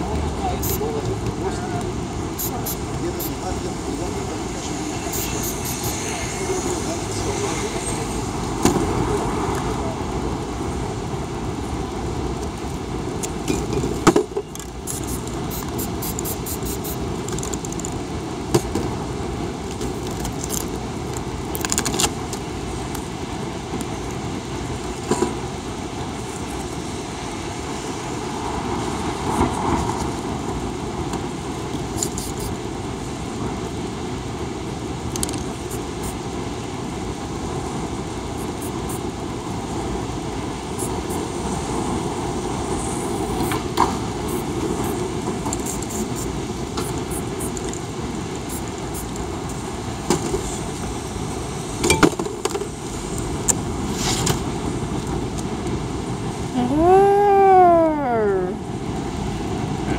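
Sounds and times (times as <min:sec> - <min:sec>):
city traffic noise: 0:00.0 - 0:59.9
spray-paint cans clinking: 0:02.4 - 0:03.3, 0:05.1 - 0:05.9, 0:14.8 - 0:17.9.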